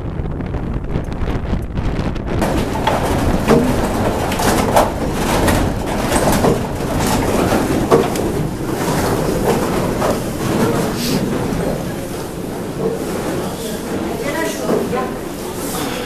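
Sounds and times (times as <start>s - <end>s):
wooden gearing rumbling: 0.0s - 15.6s
wooden knocks and creaks: 2.4s - 13.5s.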